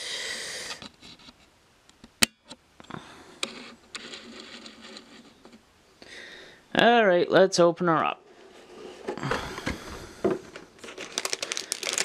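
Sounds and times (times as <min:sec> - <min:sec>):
rustling and light scraping: 0:03.5 - 0:05.6, 0:08.2 - 0:09.3.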